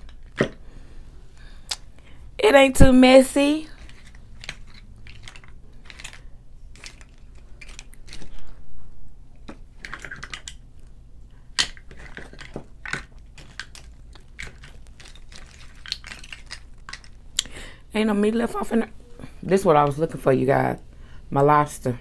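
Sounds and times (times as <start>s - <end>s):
crab shell cracking: 11.6s - 17.5s.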